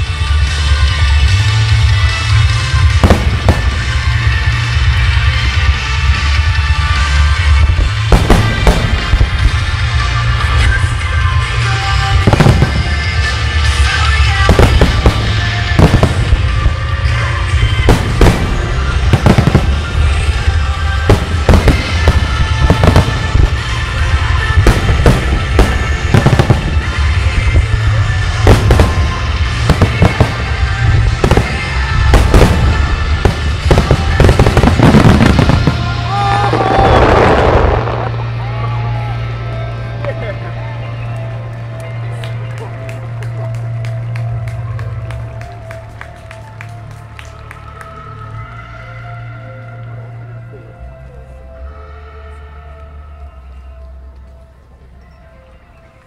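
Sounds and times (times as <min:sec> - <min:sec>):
fireworks bursting with crackle: 0:00.0 - 0:40.2
music playing: 0:00.0 - 0:56.0.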